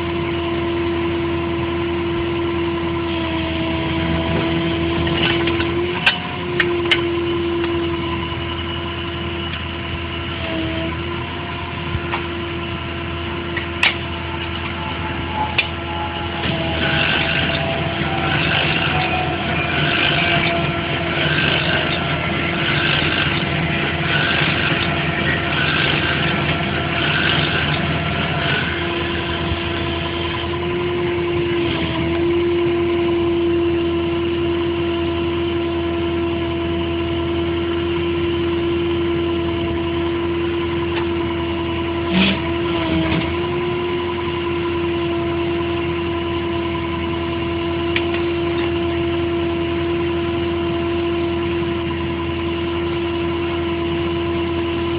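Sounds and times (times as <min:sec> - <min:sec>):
strong steady whine: 0:00.0 - 0:54.9
truck engine idling: 0:03.7 - 0:31.6.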